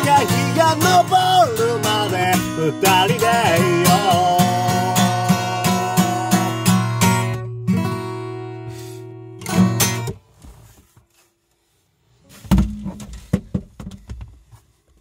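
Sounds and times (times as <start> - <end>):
acoustic guitar strumming: 0.0 - 10.2
guitar being handled and set aside: 12.3 - 14.6.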